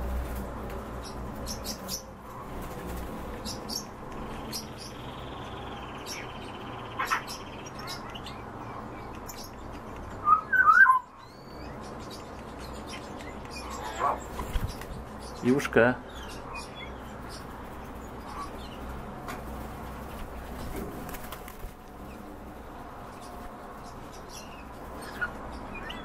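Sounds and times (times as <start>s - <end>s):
bird calling: 10.2s - 11.6s.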